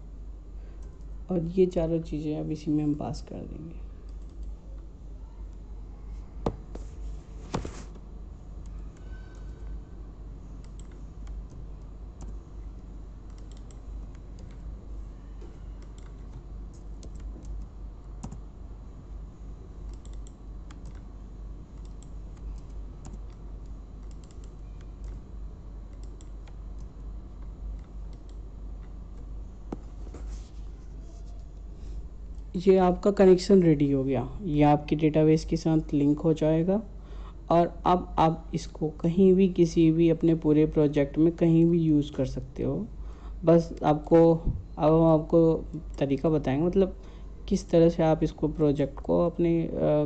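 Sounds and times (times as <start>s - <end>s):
steady low hum: 0.0s - 50.0s.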